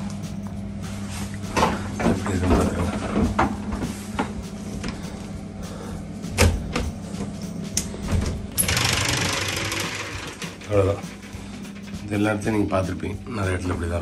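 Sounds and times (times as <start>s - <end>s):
steady low hum: 0.0s - 9.3s.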